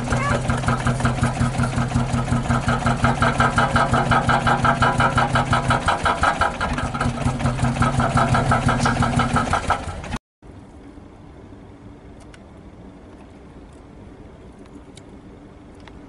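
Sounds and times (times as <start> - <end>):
engine cranking without starting: 0.0 - 10.2
starter motor hum: 0.0 - 10.2.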